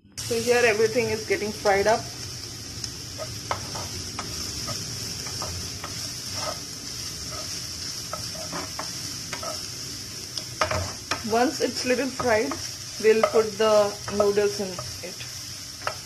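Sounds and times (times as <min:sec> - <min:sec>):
vegetables sizzling in oil: 0:00.0 - 0:16.0
wooden spatula scraping pan: 0:03.2 - 0:09.6.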